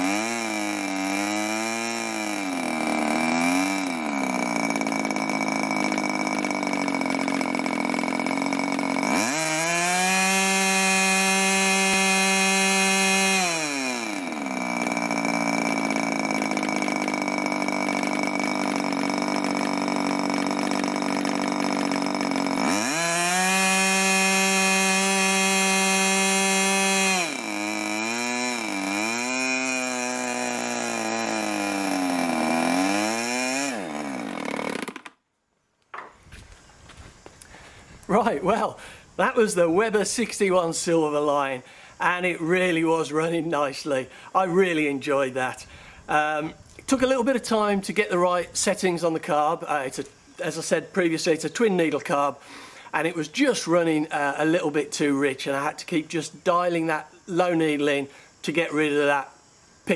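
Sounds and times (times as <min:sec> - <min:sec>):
model glow engine revving: 0:00.0 - 0:35.1.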